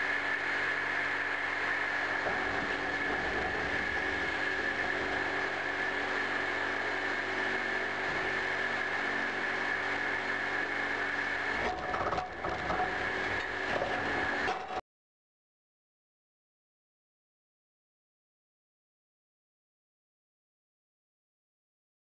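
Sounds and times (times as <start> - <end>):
blower motor droning: 0.0 - 14.8.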